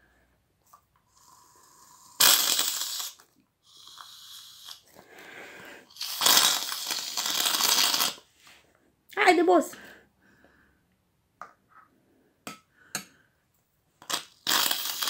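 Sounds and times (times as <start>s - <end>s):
aerosol can hissing: 1.2s - 4.8s, 5.9s - 8.2s, 14.0s - 15.0s.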